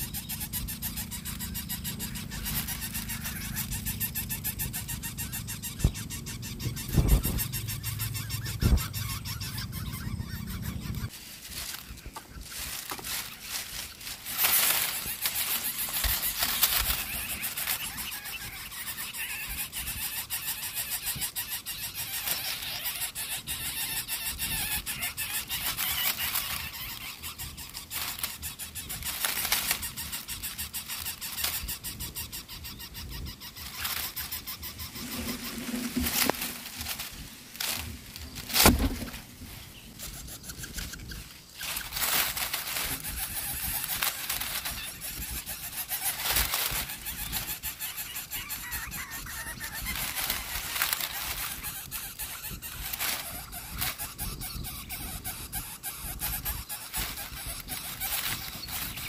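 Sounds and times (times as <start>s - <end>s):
nestlings squealing begging calls: 0.0s - 59.0s
sharp thump: 38.5s - 39.2s.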